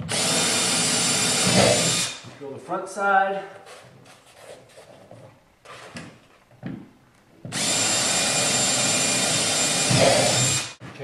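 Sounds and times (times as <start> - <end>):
electric drill boring: 0.0 - 2.2, 7.5 - 10.8.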